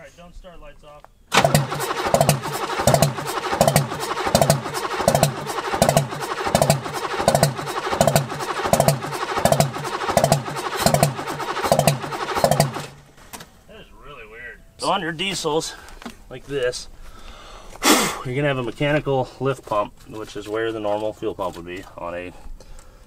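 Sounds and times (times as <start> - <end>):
diesel engine cranking: 1.3 - 13.2.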